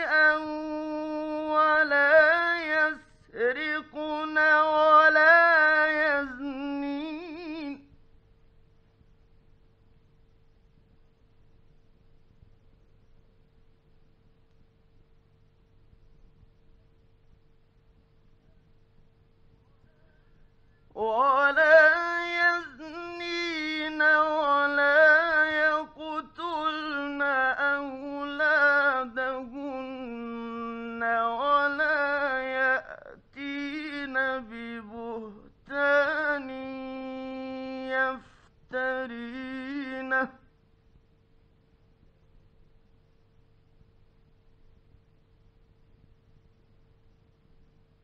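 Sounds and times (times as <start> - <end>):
man chanting melodically: 0.0 - 7.9, 20.9 - 40.4.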